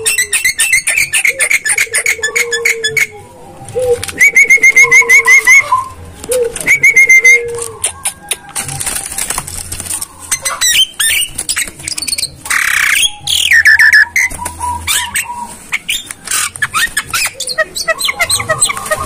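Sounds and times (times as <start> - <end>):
bird squawking and chattering: 0.0 - 9.1, 9.9 - 19.0
wings flapping: 0.0 - 19.0
bird whistles: 6.6 - 8.5, 10.3 - 19.0.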